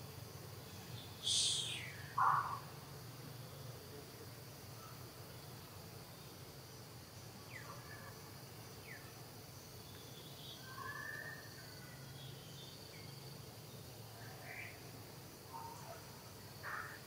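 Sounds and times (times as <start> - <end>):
high insect drone: 0.0 - 17.0
short chirping calls: 1.0 - 2.6.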